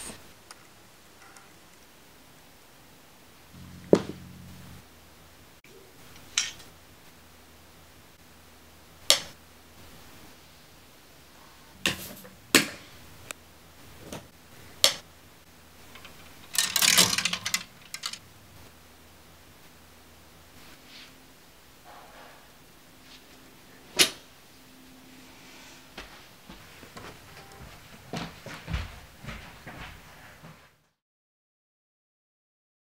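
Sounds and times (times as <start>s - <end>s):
clothes hangers clicking: 15.9s - 18.2s.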